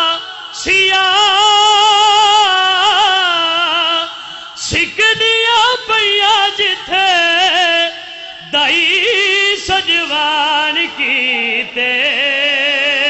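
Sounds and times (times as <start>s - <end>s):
man singing through microphones: 0.0s - 13.0s.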